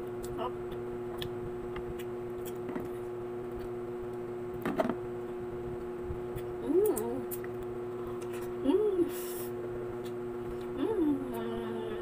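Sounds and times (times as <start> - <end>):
low hum: 0.0 - 12.0
mouth sounds of eating: 6.4 - 7.5.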